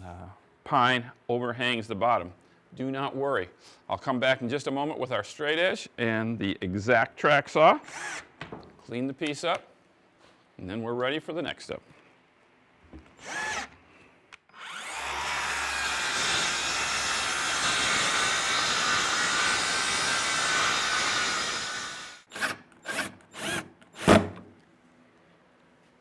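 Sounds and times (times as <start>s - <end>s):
cordless drill whirring: 7.9s - 8.2s, 13.2s - 13.8s, 14.4s - 24.2s
drill-driver bursts: 7.9s - 8.3s, 13.2s - 13.8s, 14.5s - 24.4s
circular saw cutting wood: 14.5s - 24.1s.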